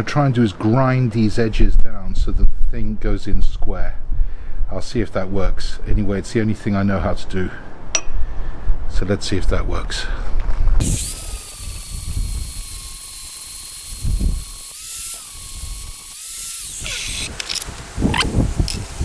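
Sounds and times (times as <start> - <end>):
metallic knocks: 8.0 - 8.2
angle grinder grinding steel: 10.8 - 17.7.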